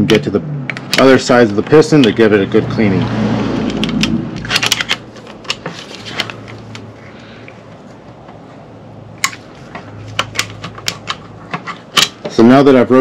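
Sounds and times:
hand tools clicking on metal: 9.2 - 12.4.

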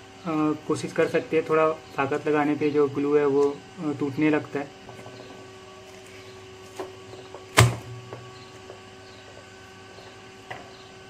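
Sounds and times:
sharp plastic crack: 7.5 - 7.9.

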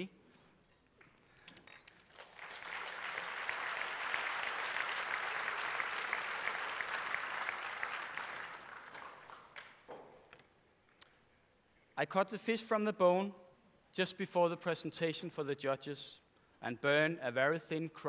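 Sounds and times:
audience applauding: 2.0 - 9.9.

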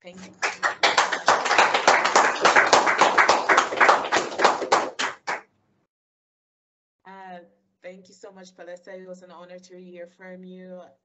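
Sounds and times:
small group clapping: 0.0 - 5.4.

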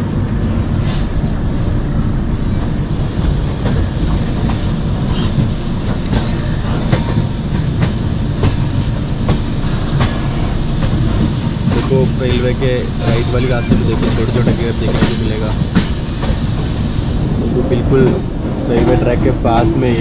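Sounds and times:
train wheels rumbling on rails: 0.0 - 20.0
train wheel clacks: 2.6 - 17.0.

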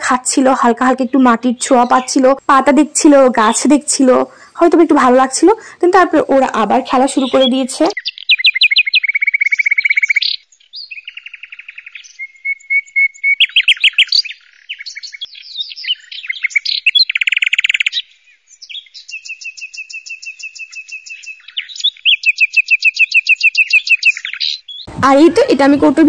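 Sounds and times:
budgerigars chattering: 7.0 - 10.4.

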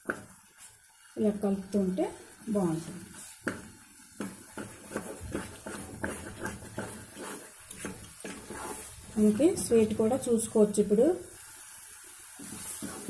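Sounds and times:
spatula scraping pan: 2.8 - 10.3, 12.4 - 13.0.

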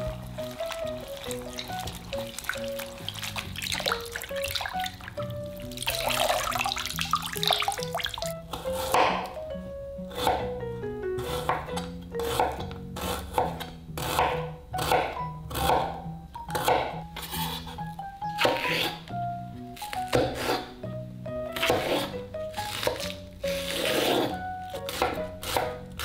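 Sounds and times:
water sloshing in a bowl: 0.0 - 8.4
background music: 0.0 - 26.0
knife slicing onion on wooden board: 8.5 - 9.4, 10.1 - 10.6, 11.2 - 19.0, 19.8 - 20.8, 21.5 - 26.0.

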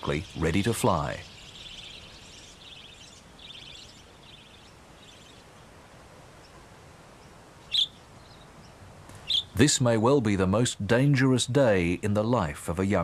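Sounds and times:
budgerigars chattering: 0.0 - 5.5, 7.7 - 8.4, 9.2 - 9.6
loud bird chirp: 0.0 - 5.7, 7.2 - 9.6.

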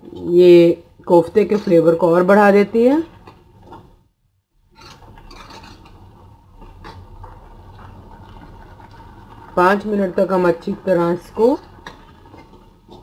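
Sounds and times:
metal ladle scraping in pot: 4.6 - 13.0.

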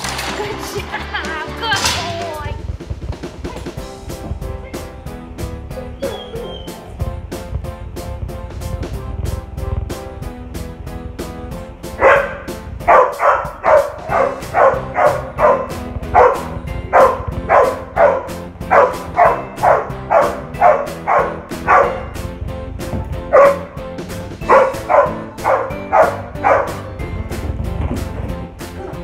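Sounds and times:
background music: 0.0 - 29.0
dog barking rapidly: 12.0 - 22.2, 23.3 - 23.8, 24.4 - 26.9.

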